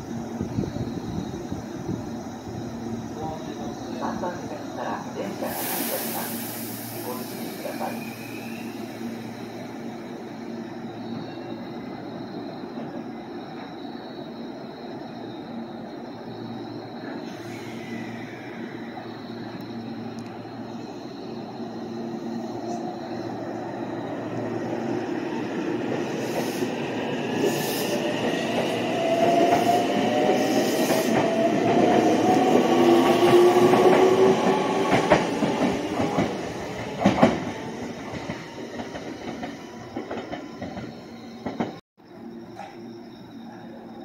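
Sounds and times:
train wheels rumbling on rails: 21.4 - 41.8.

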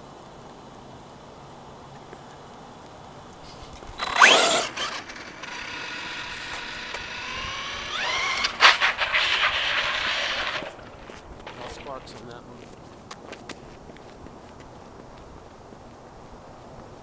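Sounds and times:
electric motor whining: 3.9 - 11.8
sharp clicks: 3.9 - 11.8.

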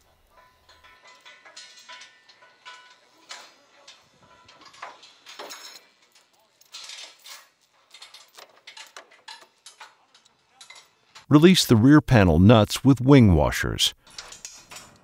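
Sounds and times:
chain links clinking and rattling: 0.4 - 11.2.

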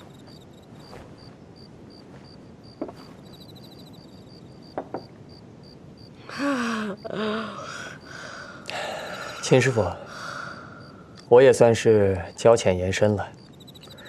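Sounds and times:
crickets chirping: 0.0 - 14.0
light knocks: 4.7 - 5.1.

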